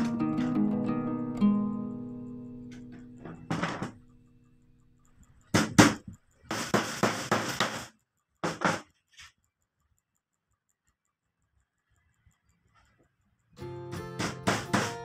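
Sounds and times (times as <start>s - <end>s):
hammer striking nails into wood: 5.6s - 8.9s, 14.2s - 15.0s.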